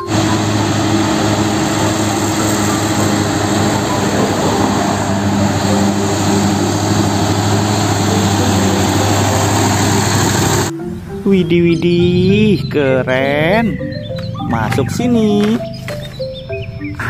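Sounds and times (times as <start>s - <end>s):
truck diesel engine passing: 0.0s - 17.0s.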